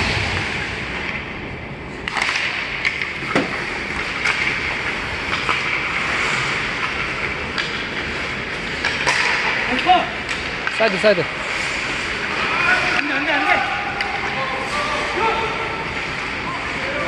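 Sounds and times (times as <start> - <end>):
puck hitting boards: 2.0 - 8.1, 8.8 - 11.1
sticks striking puck: 2.0 - 14.4
skate blades scraping ice: 2.0 - 17.0.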